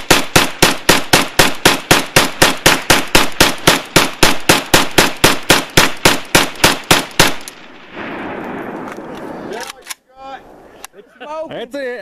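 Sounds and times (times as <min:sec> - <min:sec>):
rifle firing rapid shots: 0:00.0 - 0:09.7.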